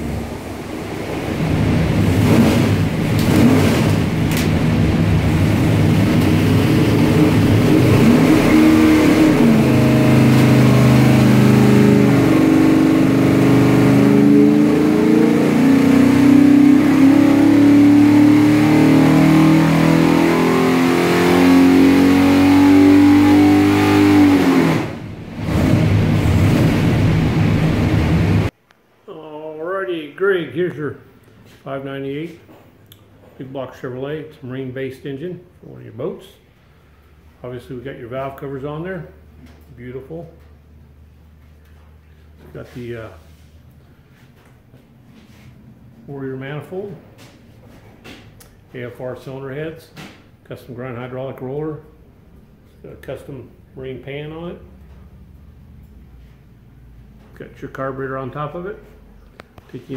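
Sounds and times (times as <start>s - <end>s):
engine revving on a dyno: 0.0s - 28.5s.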